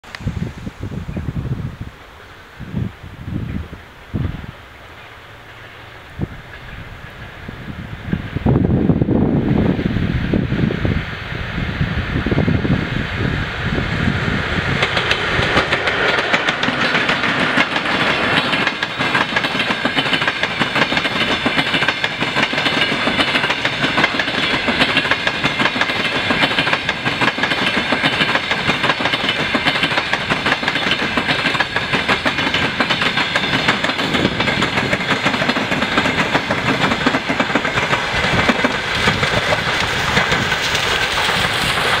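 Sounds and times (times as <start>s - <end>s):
passenger train passing: 0.0s - 42.0s
train wheels clicking over rail joints: 13.4s - 42.0s.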